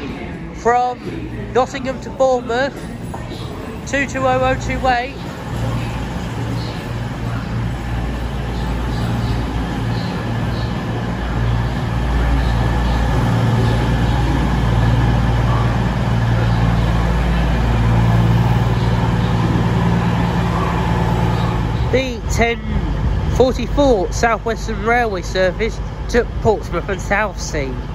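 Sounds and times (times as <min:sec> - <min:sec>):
diesel train engine drone: 0:00.0 - 0:27.9.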